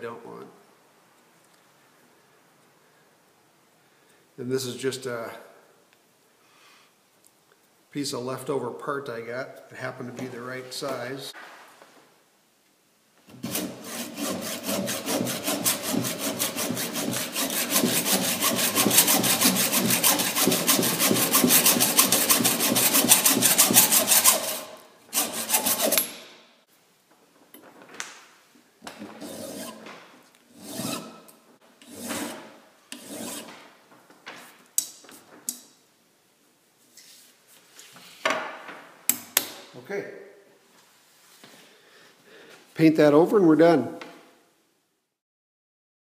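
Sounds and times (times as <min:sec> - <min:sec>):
hacksaw cutting screw: 0:13.4 - 0:26.3, 0:30.6 - 0:33.5.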